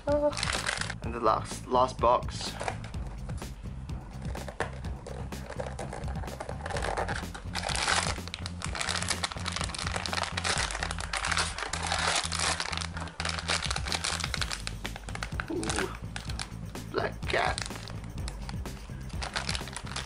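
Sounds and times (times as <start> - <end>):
background music: 0.0 - 20.0
plastic bags crinkling: 0.1 - 1.0, 5.5 - 16.5, 17.3 - 20.0.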